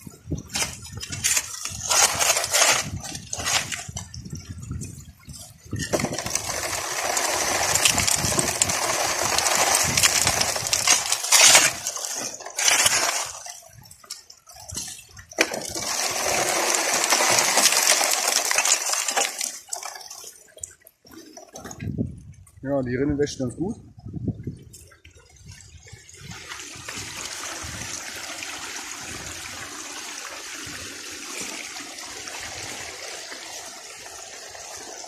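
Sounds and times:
shovel scraping wet gravel: 0.5s - 4.1s, 5.7s - 20.4s
pebbles clinking: 0.5s - 4.5s, 5.7s - 20.6s.

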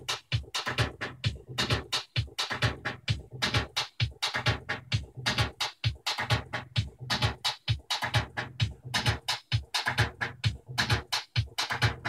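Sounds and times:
music with drum-machine beat: 0.0s - 12.0s.

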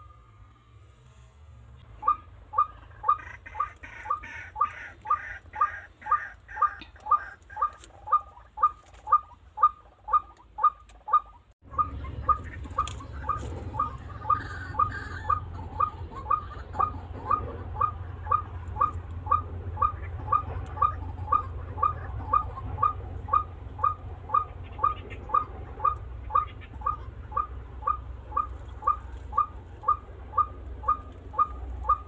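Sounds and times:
bird calling short downward notes: 2.0s - 32.0s
low rumble: 11.6s - 32.0s.

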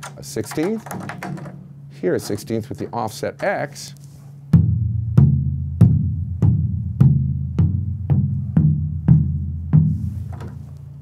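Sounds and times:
bass drum tapped with mallet: 4.5s - 10.5s.

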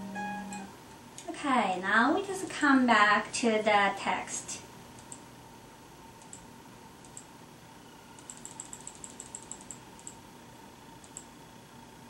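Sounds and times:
computer keys clicking: 5.0s - 5.2s, 6.2s - 6.4s, 7.0s - 7.3s, 8.2s - 10.2s, 11.0s - 11.3s.

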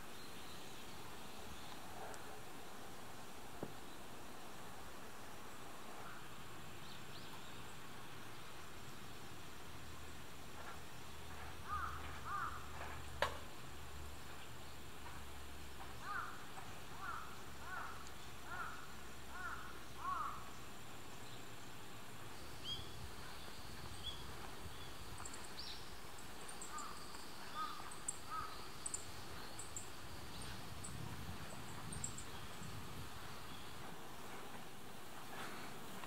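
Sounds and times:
rural background noise: 0.0s - 36.0s
crow-like caws: 11.6s - 12.7s, 16.0s - 16.4s, 17.0s - 20.4s, 26.7s - 28.6s
small birds chirping: 15.8s - 34.0s.

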